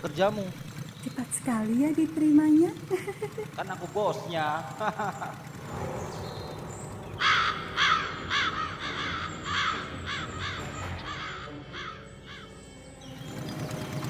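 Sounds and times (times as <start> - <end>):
crows cawing: 6.4 - 12.8.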